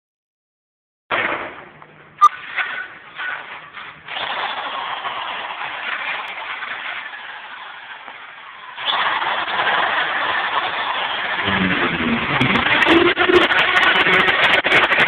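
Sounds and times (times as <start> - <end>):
electric drill drilling into wall: 4.1 - 15.0.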